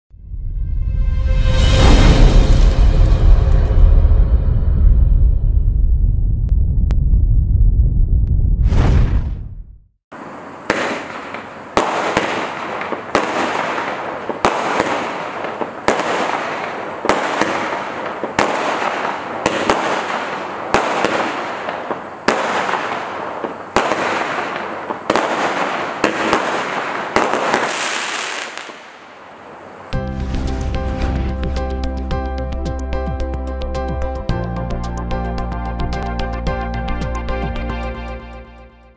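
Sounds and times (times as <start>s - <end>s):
firework bangs: 10.1s - 31.3s
hissing crackle of firework breaks: 10.2s - 31.2s.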